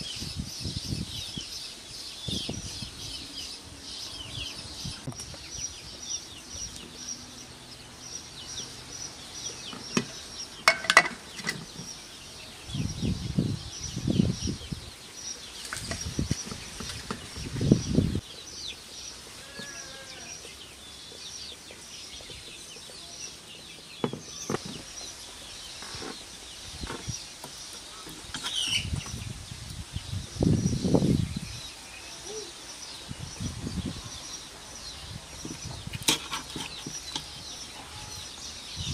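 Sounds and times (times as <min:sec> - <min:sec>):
small birds chirping: 0:00.0 - 0:38.9
rustles: 0:15.3 - 0:30.0.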